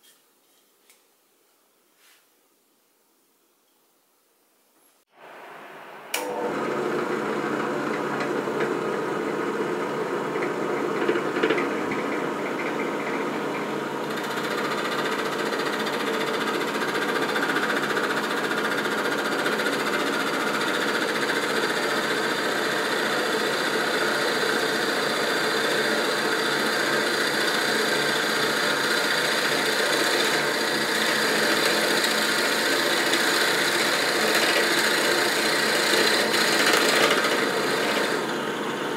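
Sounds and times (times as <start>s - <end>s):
drill press motor humming: 6.1s - 38.9s
drill bit boring into wood: 10.3s - 38.9s.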